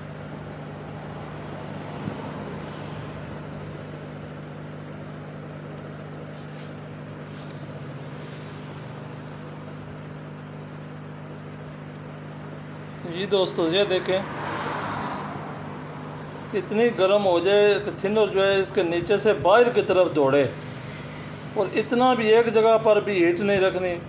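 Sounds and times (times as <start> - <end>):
hot air gun blowing: 20.5 - 21.6.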